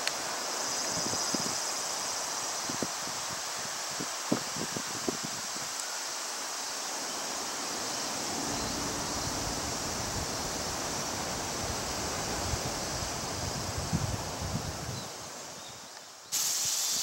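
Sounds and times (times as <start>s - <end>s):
outdoor hiss: 0.0s - 17.0s
wind rumbling on microphone: 2.4s - 5.8s, 6.9s - 15.7s.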